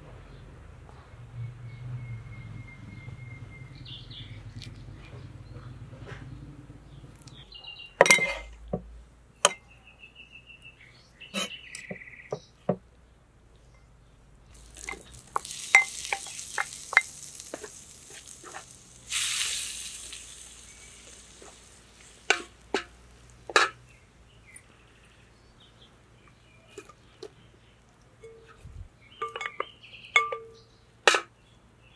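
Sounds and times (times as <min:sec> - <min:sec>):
spoon scraping bowl and pan: 0:08.0 - 0:08.6, 0:11.3 - 0:12.0, 0:14.5 - 0:23.8
egg sizzling in pan: 0:14.5 - 0:23.8.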